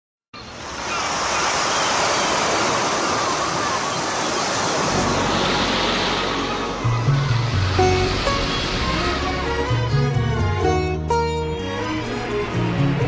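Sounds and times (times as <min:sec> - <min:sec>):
ocean surf washing on beach: 0:00.4 - 0:10.3.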